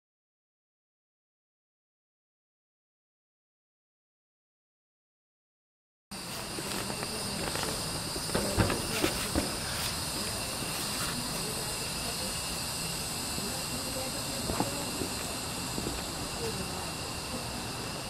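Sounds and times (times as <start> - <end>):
night insects chirring: 6.1 - 18.0.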